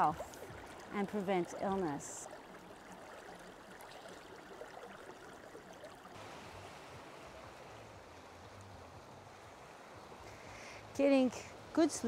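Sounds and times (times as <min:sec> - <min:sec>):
stream trickling over rocks: 0:00.0 - 0:12.0
low open-air rumble: 0:05.2 - 0:11.8.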